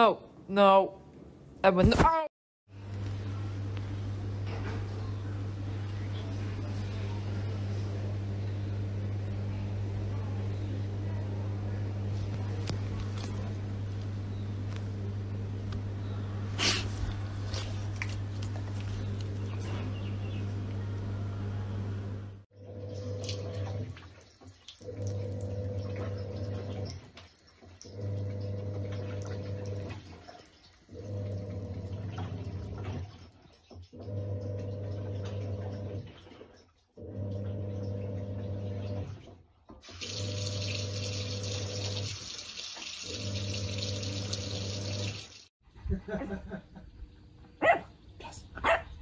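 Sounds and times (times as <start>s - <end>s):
steady low hum: 2.7s - 23.8s
tap water running into basin: 22.8s - 39.2s, 39.8s - 45.5s.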